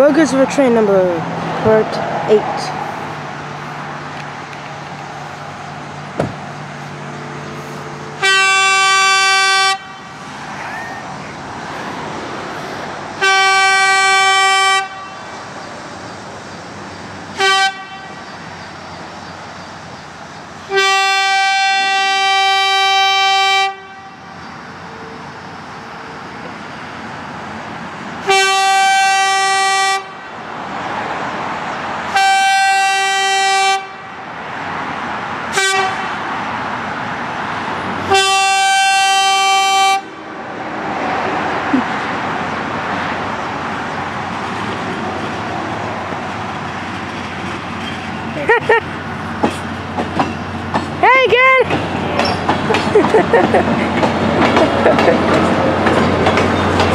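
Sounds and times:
train horn blasts: 8.2 - 10.2, 13.2 - 15.3, 17.4 - 18.2, 20.7 - 24.3, 28.3 - 30.2, 32.1 - 34.1, 35.5 - 36.2, 38.1 - 40.3.

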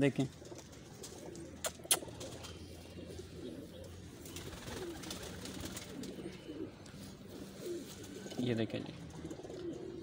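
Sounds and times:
pigeons cooing: 0.3 - 10.0.

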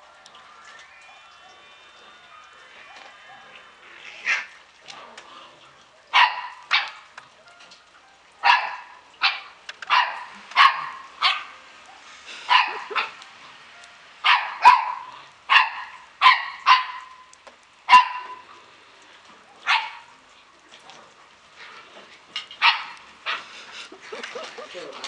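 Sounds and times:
puppies barking: 6.1 - 7.1, 8.4 - 13.2, 14.2 - 17.3, 17.9 - 18.5, 19.5 - 20.2, 22.5 - 23.5.

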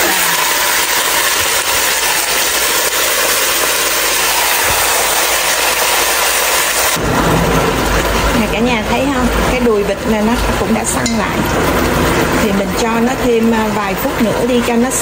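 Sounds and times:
meat sizzling in hot oil: 0.0 - 7.0.

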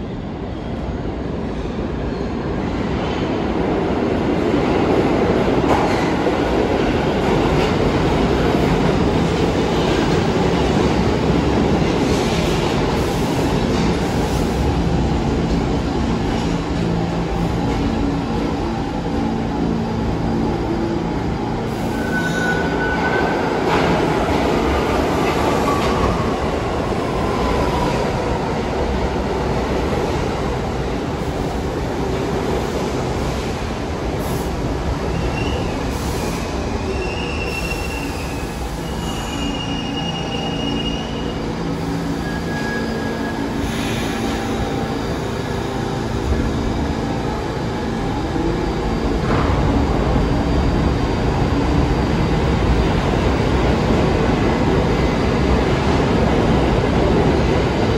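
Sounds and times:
subway train running: 0.0 - 57.9
wheels squealing on rails: 21.7 - 24.2, 35.0 - 44.9.

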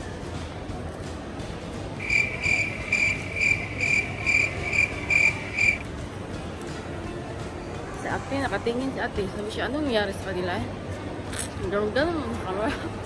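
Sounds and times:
high-pitched electronic beeps: 2.0 - 5.8.

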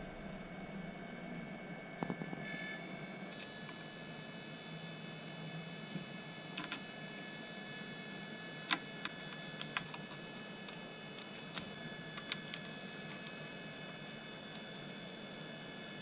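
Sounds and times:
high-pitched whine and hiss: 0.0 - 16.0
screwdriver clicks and taps: 6.6 - 6.8.

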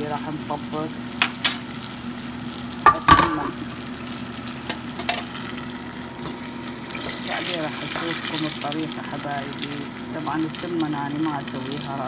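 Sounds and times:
potatoes sizzling in hot oil: 0.0 - 12.0
utensil clanking against metal pot: 2.8 - 3.6.

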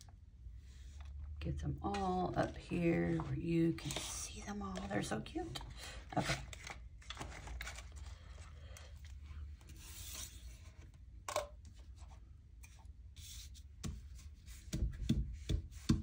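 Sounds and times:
paper and cards rustling: 1.9 - 11.0.

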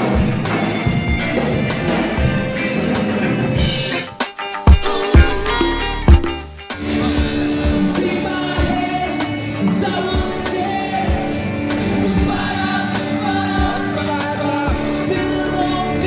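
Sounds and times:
rock band playing: 0.0 - 16.0
man singing: 7.3 - 16.0.

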